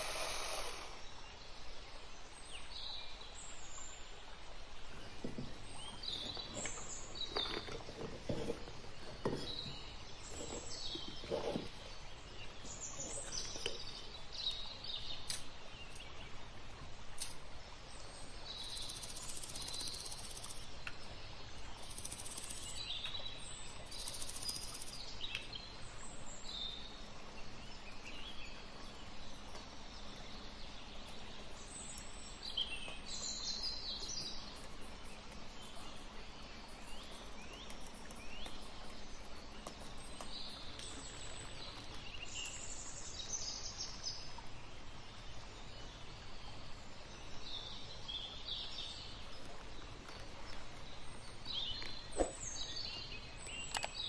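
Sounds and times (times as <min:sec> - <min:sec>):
background hiss: 0:00.0 - 0:54.0
small birds chirping: 0:00.0 - 0:54.0
soft knocks and scrapes: 0:05.1 - 0:12.0.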